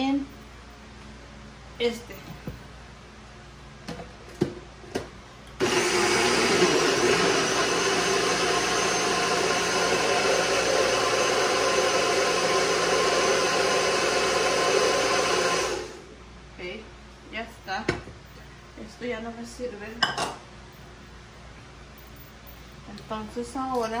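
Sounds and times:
blender running: 5.6 - 16.1.

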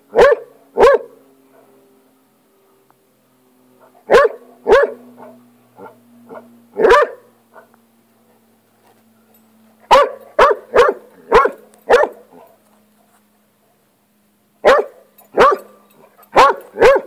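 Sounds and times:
dog barking: 0.1 - 1.2, 4.1 - 7.7, 9.9 - 12.5, 14.6 - 17.0.

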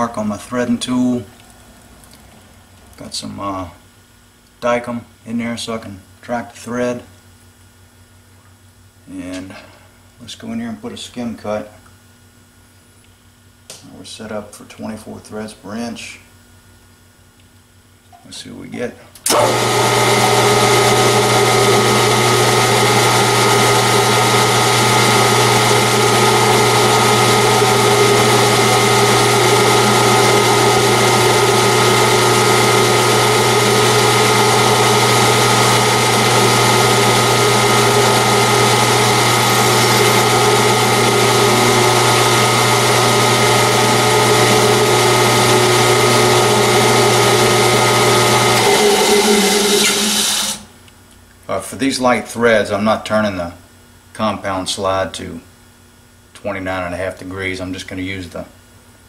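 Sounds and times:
metal lathe running: 19.3 - 50.7.

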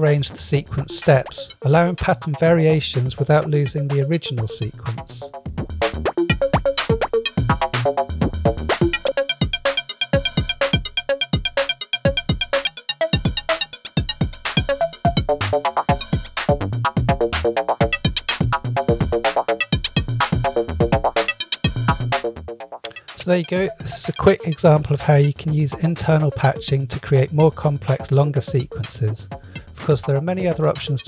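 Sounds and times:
drum machine beats: 0.0 - 31.0
plucky synthesizer notes: 3.4 - 26.6.

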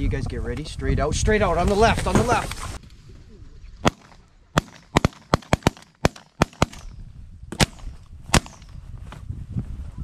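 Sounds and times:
shotguns firing: 3.8 - 8.7.

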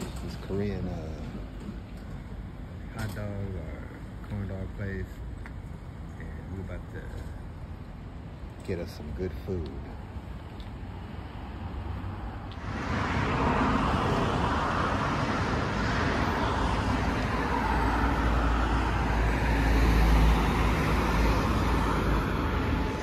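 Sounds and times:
jet airliner passing overhead: 12.2 - 23.0.

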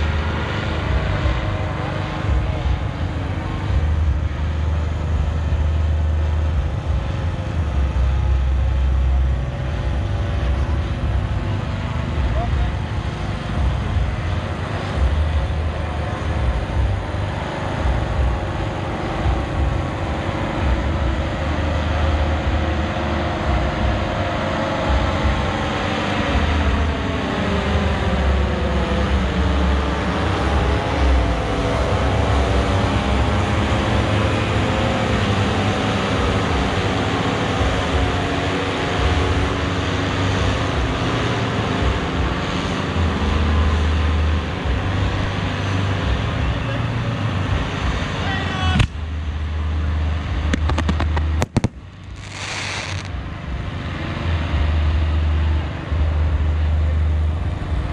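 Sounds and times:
steady low rumble: 0.0 - 33.5, 48.8 - 57.9
aircraft engines droning overhead: 0.0 - 57.9.

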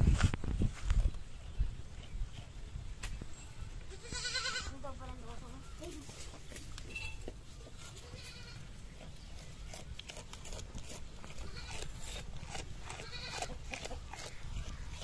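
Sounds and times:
goats bleating: 3.9 - 4.8, 8.0 - 8.7, 11.3 - 11.9, 12.8 - 13.7.

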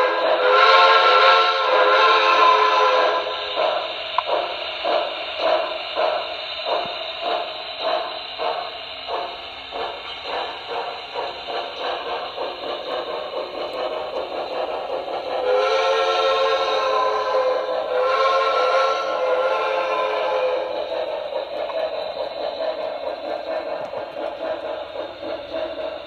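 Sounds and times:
steam whistle: 0.0 - 3.8, 15.4 - 20.9
steam locomotive exhaust chuffs: 0.0 - 26.0.

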